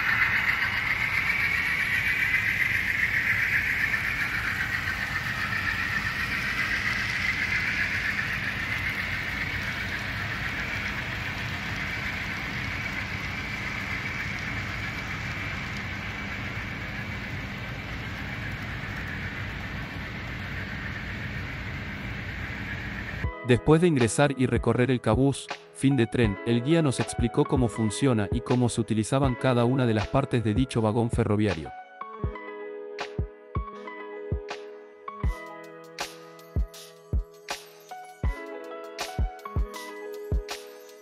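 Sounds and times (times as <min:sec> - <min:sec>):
model train whirring rattle: 0:00.0 - 0:23.2.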